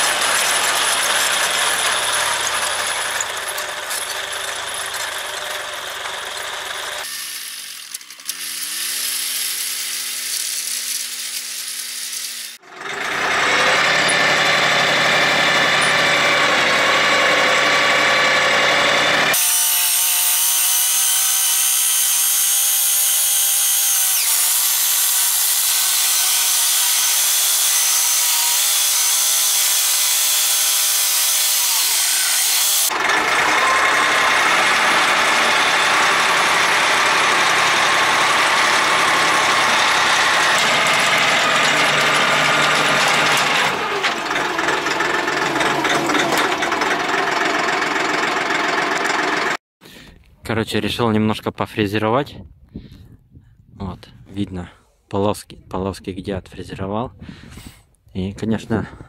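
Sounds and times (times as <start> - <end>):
tractor engine running: 0.0 - 19.4, 32.8 - 49.6
rotary tiller mechanical whine: 0.0 - 49.6.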